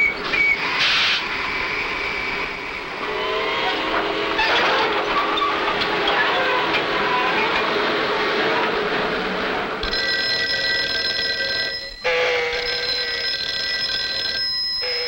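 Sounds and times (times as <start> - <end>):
rushing noise: 0.0 - 9.8
desk telephone ringing: 9.8 - 15.0.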